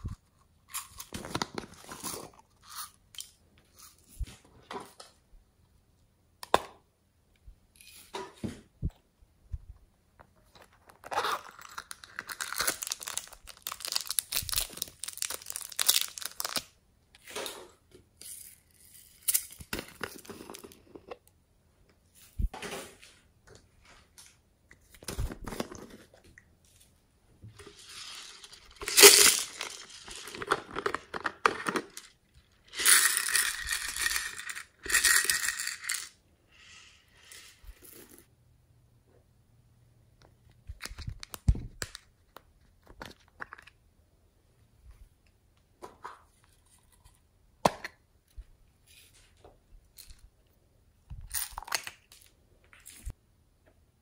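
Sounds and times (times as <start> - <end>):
beads poured into palm: 27.6 - 30.4.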